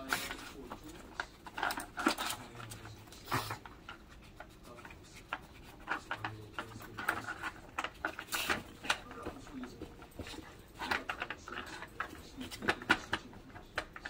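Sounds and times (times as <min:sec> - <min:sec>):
plastic rubbing: 0:00.0 - 0:14.0
plastic toy clicking and tapping: 0:05.3 - 0:14.0.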